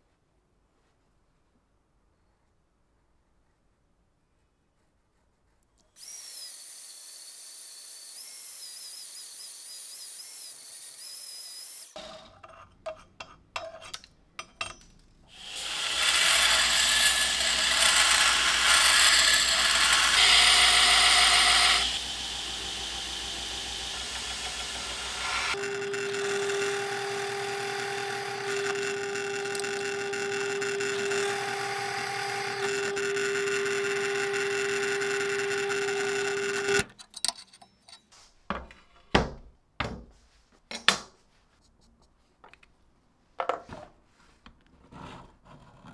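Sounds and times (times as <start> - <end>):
belt grinder grinding steel: 15.3 - 36.9
drill press humming: 15.4 - 36.8.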